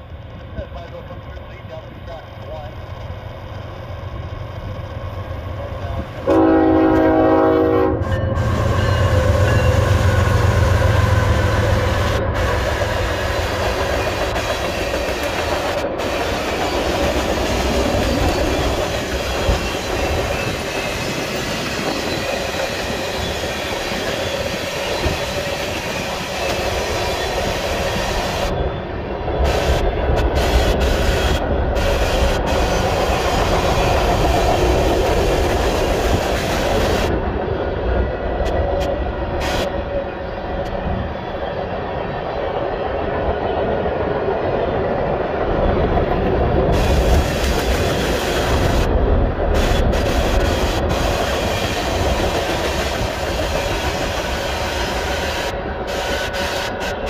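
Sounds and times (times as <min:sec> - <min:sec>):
diesel locomotive rumbling: 0:00.0 - 0:57.0
train horn blast: 0:06.2 - 0:11.4
train wheels clacking on rails: 0:08.1 - 0:28.6, 0:45.4 - 0:57.0.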